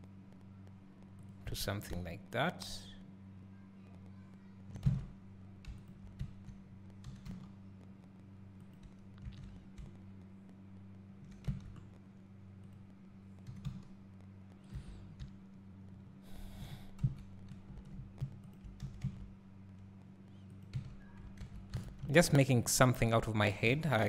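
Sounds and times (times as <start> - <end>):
low electrical hum: 0.0 - 24.0
keyboard and mouse clicking: 4.7 - 7.5, 8.6 - 10.0, 12.6 - 14.0, 16.6 - 19.8, 20.4 - 22.1.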